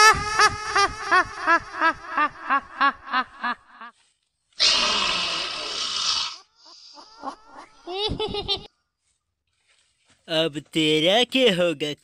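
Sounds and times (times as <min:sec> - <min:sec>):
ghost laughing: 0:00.0 - 0:03.9, 0:06.6 - 0:08.7.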